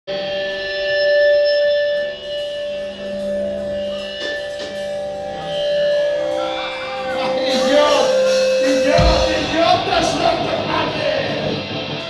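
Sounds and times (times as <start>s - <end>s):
live band playing: 0.1s - 12.0s.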